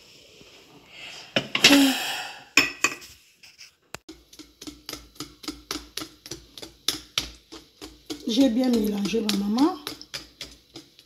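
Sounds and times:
whisk clicking against bowl: 0:04.1 - 0:11.0.

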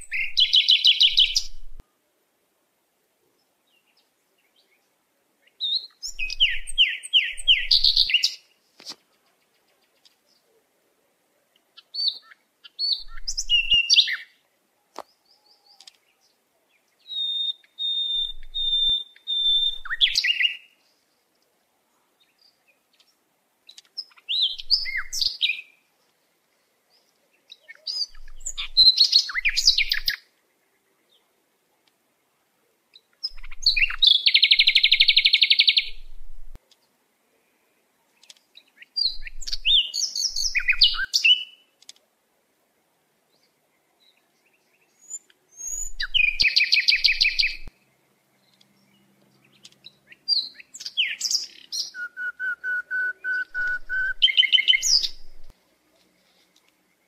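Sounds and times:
songbird chirping and whistling: 0:00.0 - 0:01.8, 0:05.4 - 0:08.5, 0:11.8 - 0:14.4, 0:15.0 - 0:20.8, 0:23.7 - 0:25.8, 0:27.5 - 0:30.3, 0:33.0 - 0:36.3, 0:38.2 - 0:41.7, 0:44.0 - 0:47.7, 0:48.4 - 0:55.5.

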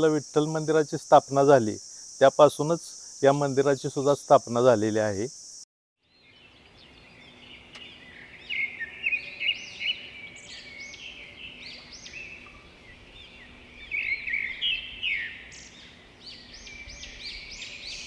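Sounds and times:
chorus of birds chirping: 0:05.2 - 0:18.0.

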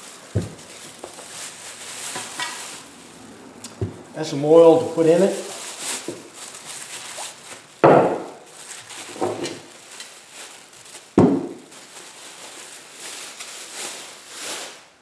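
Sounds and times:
plastic bag rustling: 0:00.0 - 0:15.0
cans knocking on a workbench: 0:07.8 - 0:08.3, 0:11.2 - 0:11.6.

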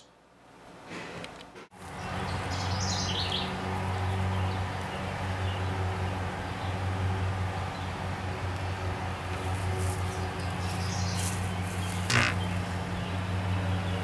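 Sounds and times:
birds chirping: 0:02.0 - 0:05.7, 0:08.6 - 0:14.0.

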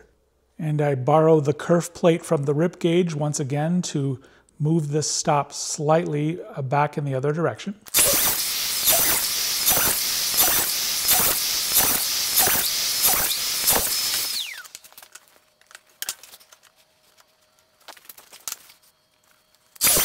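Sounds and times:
circular saw cutting plywood: 0:07.9 - 0:14.7, 0:19.8 - 0:20.0
saw blade spinning down: 0:07.9 - 0:14.8, 0:19.8 - 0:20.0.

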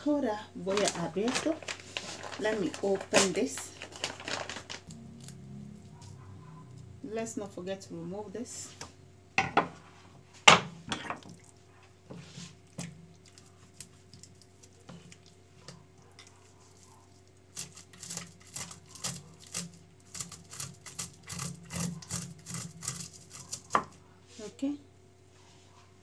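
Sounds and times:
knock on cutting board: 0:09.4 - 0:09.8
knife scraping fish scales: 0:15.7 - 0:23.7.

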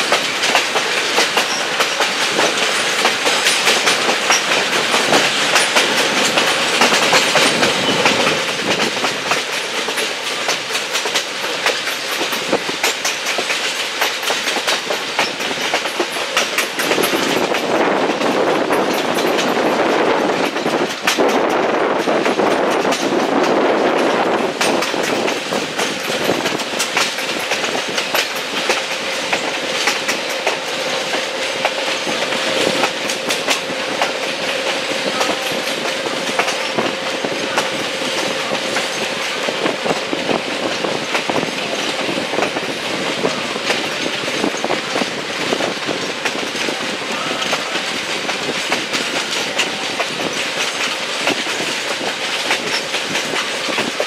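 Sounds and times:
rail clacks: 0:00.0 - 0:54.0
train wheels rumbling on rails: 0:00.0 - 0:54.0.

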